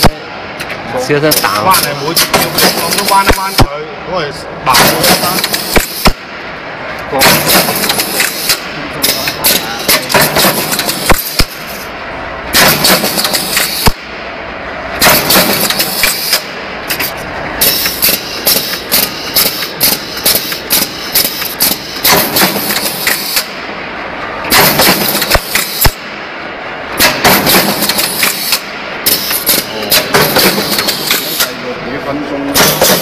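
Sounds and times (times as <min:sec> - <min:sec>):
punch press stamping metal: 0:02.1 - 0:03.7, 0:04.7 - 0:06.3, 0:07.2 - 0:11.8, 0:12.5 - 0:14.1, 0:15.0 - 0:23.7, 0:24.5 - 0:26.2, 0:27.0 - 0:31.6, 0:32.5 - 0:33.0.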